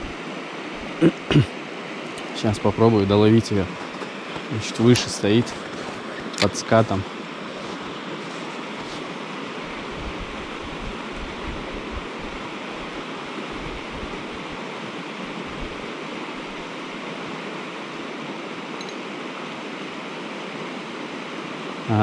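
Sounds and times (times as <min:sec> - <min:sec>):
wind rumble on microphone: 0:00.0 - 0:00.2, 0:08.1 - 0:16.7
river rushing over rocks: 0:00.0 - 0:22.0.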